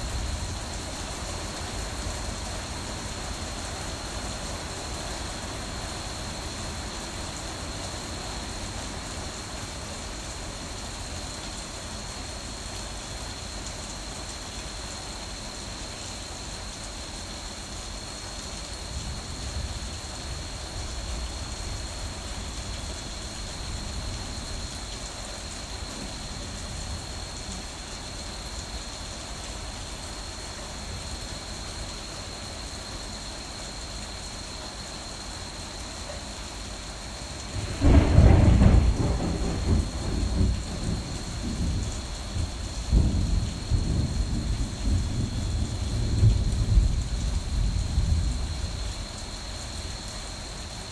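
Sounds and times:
heavy rain: 0:00.0 - 0:50.9
thunder clap and rumble: 0:37.4 - 0:48.9.

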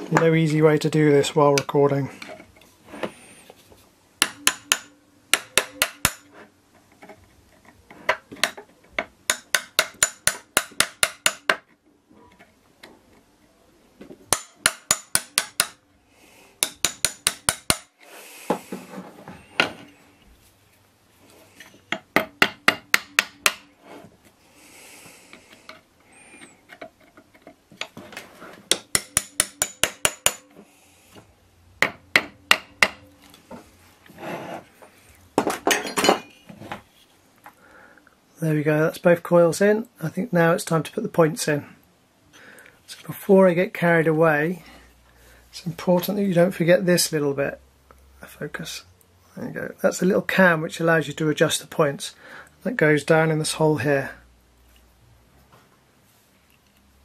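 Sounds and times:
screwdriver tapping metal: 0:28.7 - 0:30.5.

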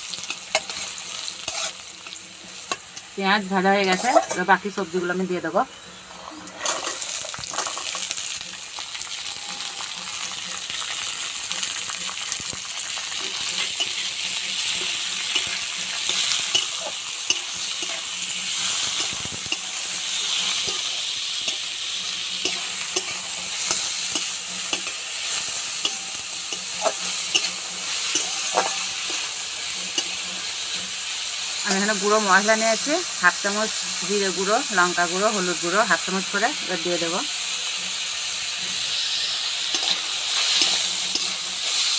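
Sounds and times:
metal spatula scraping a pan: 0:00.0 - 0:04.6, 0:05.7 - 0:08.1, 0:13.0 - 0:31.8, 0:37.8 - 0:41.9
vegetables sizzling in oil: 0:00.0 - 0:41.9.

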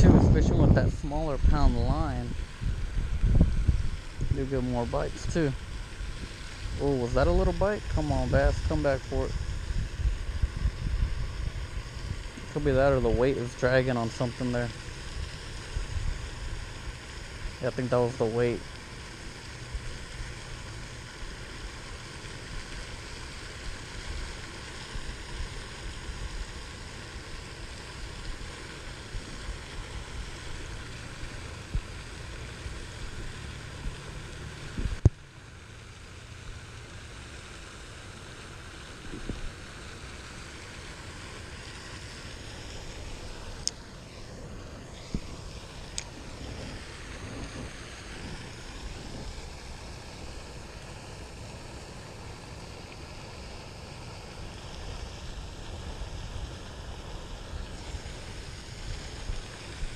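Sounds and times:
wind buffeting the microphone: 0:00.0 - 0:13.5, 0:34.7 - 0:35.1, 0:46.0 - 0:49.7
steady hiss: 0:00.0 - 0:59.9.

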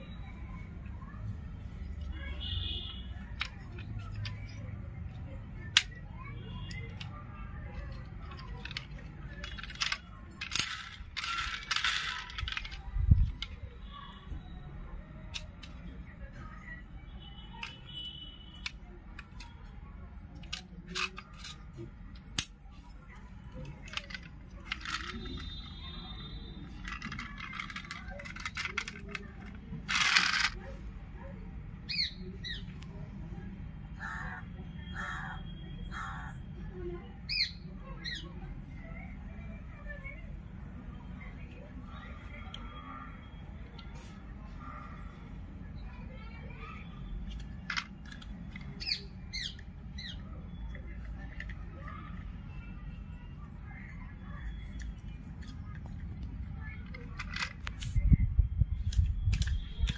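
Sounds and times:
plastic toy parts rattling: 0:01.8 - 0:14.0, 0:15.2 - 0:16.8, 0:17.6 - 0:30.8, 0:47.2 - 0:53.1, 0:54.4 - 0:58.2, 0:58.8 - 0:59.9
crow cawing: 0:34.0 - 0:36.4.

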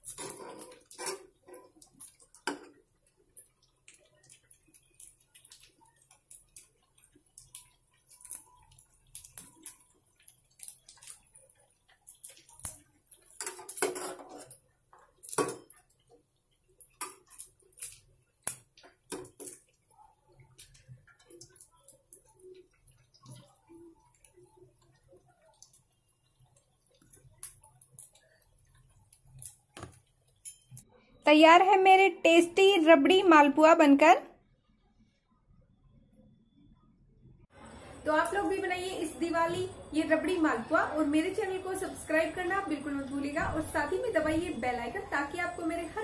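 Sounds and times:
metal tongs clinking on saucepan: 0:30.4 - 0:30.8.

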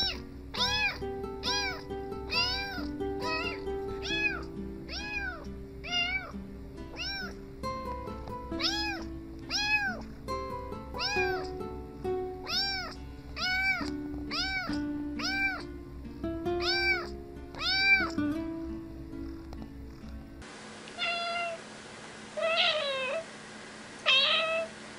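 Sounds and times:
kitten meowing: 0:00.0 - 0:06.3, 0:06.9 - 0:07.4, 0:08.6 - 0:10.1, 0:11.0 - 0:11.6, 0:12.4 - 0:15.7, 0:16.6 - 0:18.2, 0:21.0 - 0:21.6, 0:22.4 - 0:23.2, 0:24.0 - 0:24.7
background music: 0:00.0 - 0:20.4.

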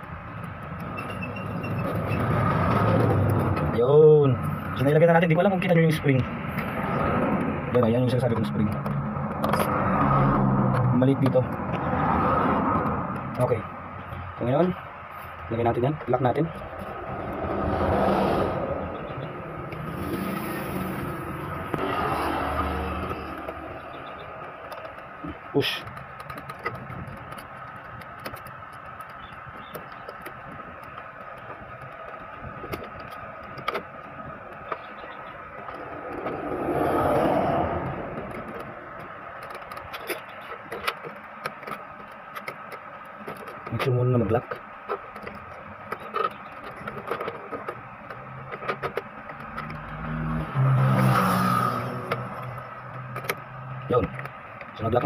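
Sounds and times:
steady background hum: 0:00.0 - 0:50.6
plastic parts clicking: 0:19.7 - 0:36.8, 0:37.7 - 0:50.3.

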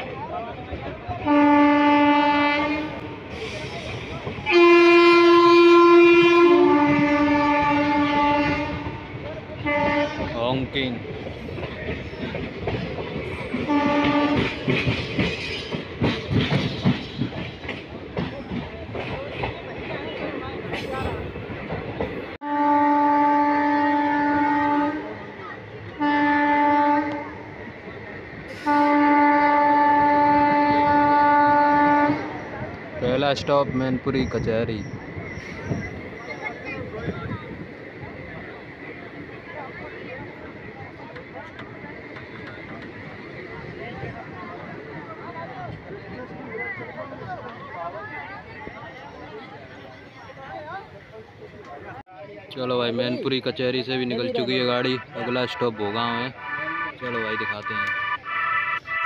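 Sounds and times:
train coaches running: 0:00.0 - 0:59.0
train air horn blasts: 0:01.2 - 0:03.8, 0:04.4 - 0:10.4, 0:13.5 - 0:14.6, 0:22.4 - 0:25.2, 0:26.0 - 0:27.4, 0:28.5 - 0:32.5.

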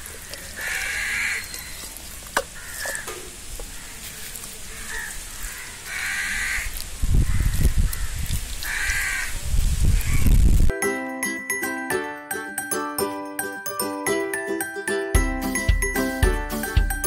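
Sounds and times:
crows cawing: 0:00.0 - 0:01.8, 0:02.4 - 0:09.4.

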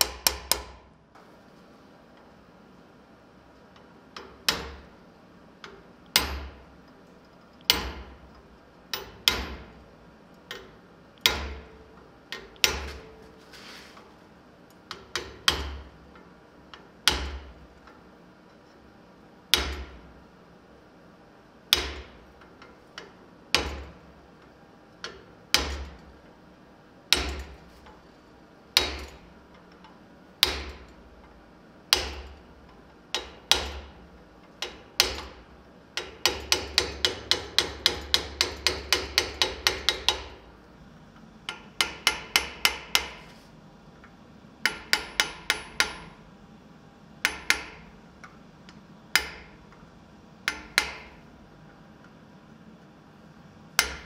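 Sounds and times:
hammer striking hot steel: 0:04.2 - 0:04.9, 0:07.7 - 0:08.1, 0:11.2 - 0:11.8, 0:19.5 - 0:20.0, 0:21.7 - 0:22.2, 0:27.1 - 0:27.6, 0:28.8 - 0:29.2, 0:30.4 - 0:30.9, 0:31.9 - 0:32.4, 0:41.5 - 0:43.3, 0:44.6 - 0:46.2, 0:49.2 - 0:49.6, 0:50.5 - 0:51.2, 0:53.8 - 0:54.0.

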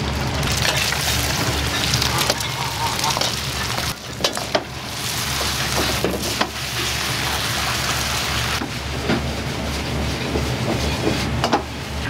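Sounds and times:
gas burner and frying hiss: 0:00.0 - 0:12.0.

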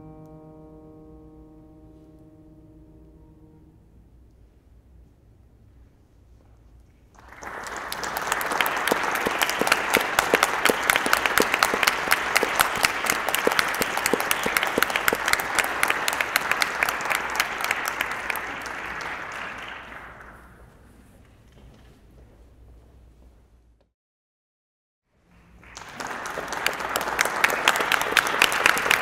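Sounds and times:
audience applauding: 0:07.2 - 0:20.7, 0:25.3 - 0:29.0.

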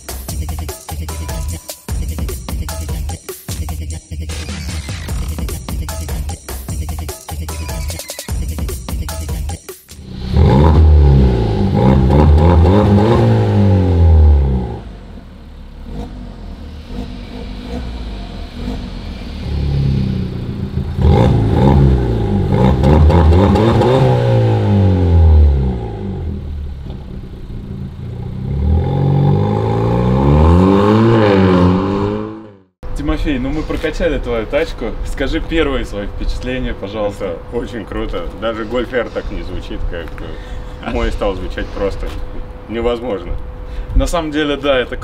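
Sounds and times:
car engine revving: 0:10.0 - 0:32.8.

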